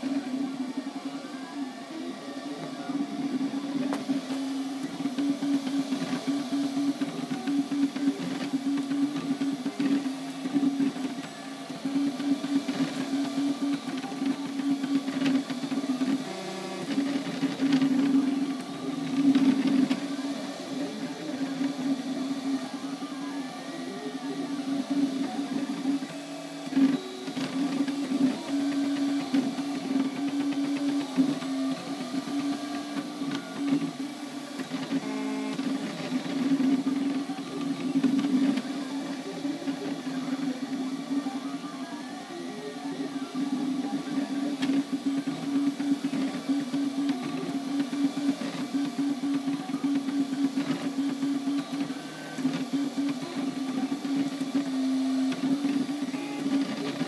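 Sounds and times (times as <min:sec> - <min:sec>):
printer stepper motors whining: 0:00.0 - 0:57.0.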